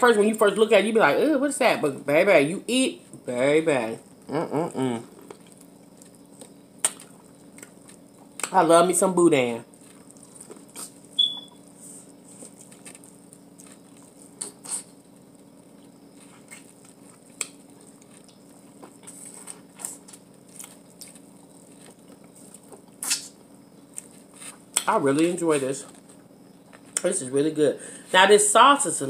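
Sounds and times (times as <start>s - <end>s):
low room hum: 0.0s - 29.0s
chewing corn on the cob: 5.0s - 8.6s, 9.7s - 11.4s, 12.1s - 27.1s
mouth clicks and lip smacks: 23.0s - 23.3s.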